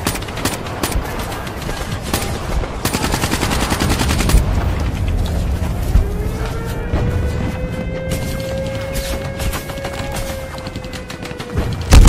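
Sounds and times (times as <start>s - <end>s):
machine-gun burst: 0.0s - 4.5s, 10.8s - 12.0s
low rumble: 4.0s - 8.8s.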